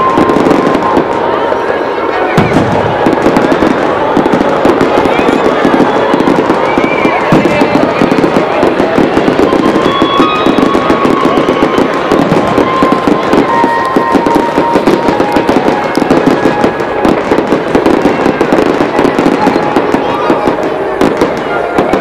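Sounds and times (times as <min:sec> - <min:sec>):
fireworks rapid bangs: 0:00.0 - 0:22.0.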